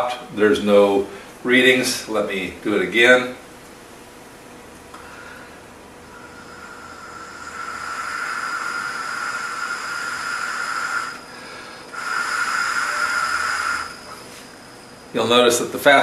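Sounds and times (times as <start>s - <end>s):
breathy hiss of blowing: 5.0s - 14.6s
whistling whine of spinning impeller: 6.0s - 16.0s.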